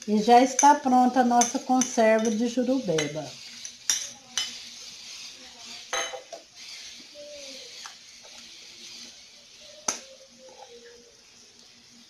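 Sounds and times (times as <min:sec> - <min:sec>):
kitchen items clinking on countertop: 0:00.5 - 0:04.6, 0:05.9 - 0:06.5.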